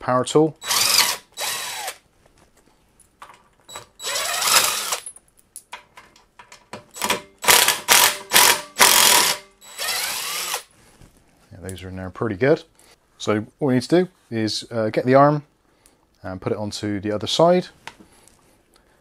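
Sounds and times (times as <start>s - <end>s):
impact driver bursts: 0.6s - 2.0s, 3.7s - 5.1s, 6.9s - 10.7s.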